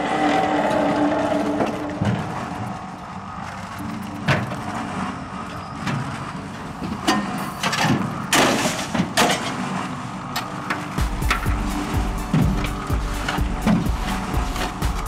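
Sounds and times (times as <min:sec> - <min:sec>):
block machine rumbling: 0:00.0 - 0:15.0.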